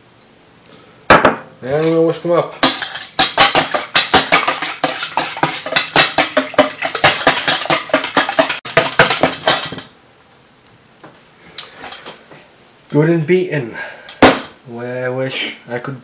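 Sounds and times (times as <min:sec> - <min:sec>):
whisk clinking on metal bowl: 0:01.8 - 0:09.9.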